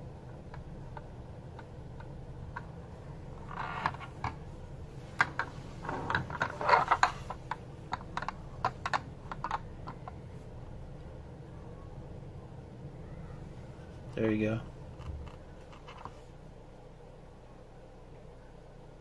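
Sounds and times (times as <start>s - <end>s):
sharp clicks and rubbing: 3.4s - 4.5s, 5.2s - 10.2s, 14.9s - 16.3s.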